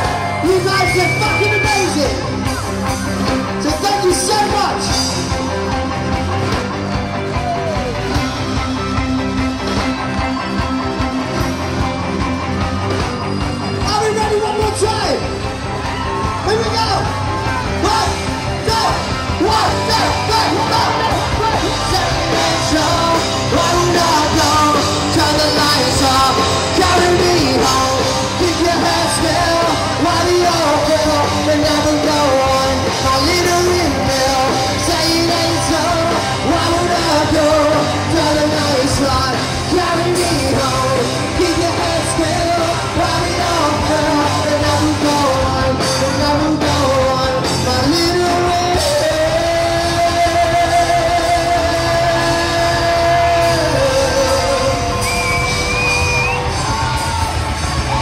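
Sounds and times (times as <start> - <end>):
live rock band with singer: 0.0 - 58.0.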